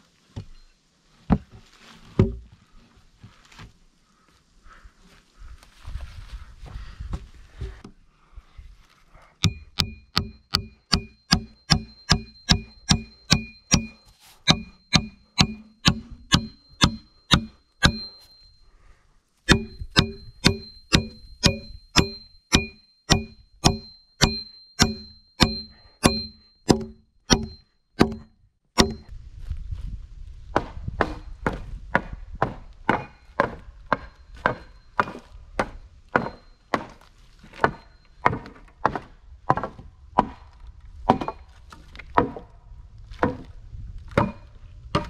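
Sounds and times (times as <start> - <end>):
axe chopping wood: 9.4 - 18.1, 19.5 - 29.1, 30.6 - 40.5, 41.1 - 42.5, 43.1 - 43.5, 44.1 - 45.0.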